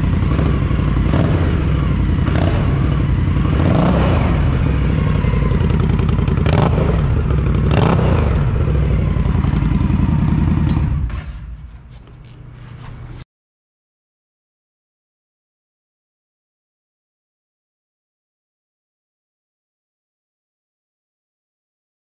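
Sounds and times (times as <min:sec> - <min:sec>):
motorcycle engine idling and revving: 0:00.0 - 0:11.7.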